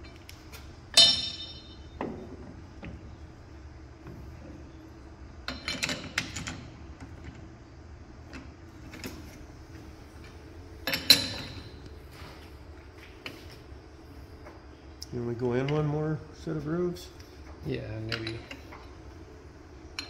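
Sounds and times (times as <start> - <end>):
sharp metal clank: 1.0 - 1.9.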